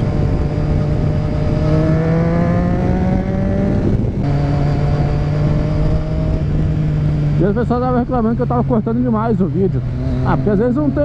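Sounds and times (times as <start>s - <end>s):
wind on microphone: 0.0s - 7.4s
motorcycle engine accelerating: 0.0s - 11.0s.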